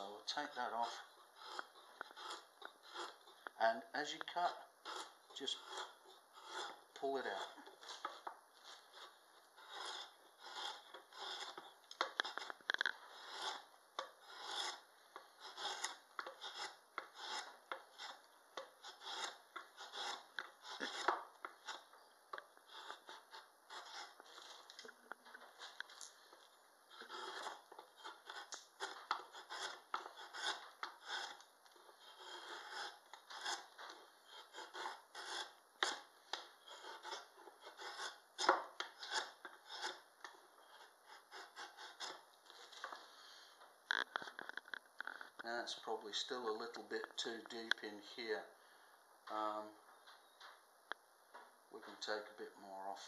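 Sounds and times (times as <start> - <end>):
drawknife scraping wood: 0.2 - 3.5, 4.1 - 22.0, 22.6 - 24.7, 26.9 - 43.0.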